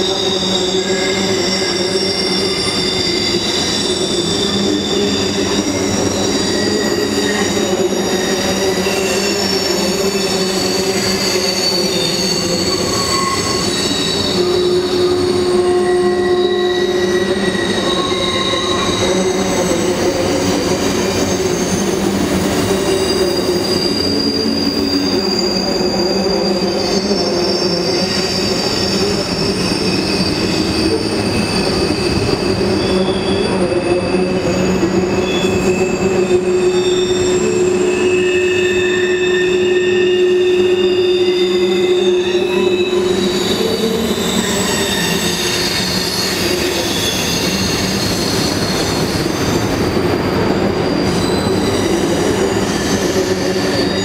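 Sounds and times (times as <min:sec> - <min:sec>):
high-pitched wheel squeal: 0:00.0 - 0:54.0
train wheels rumbling on rail: 0:00.0 - 0:54.0.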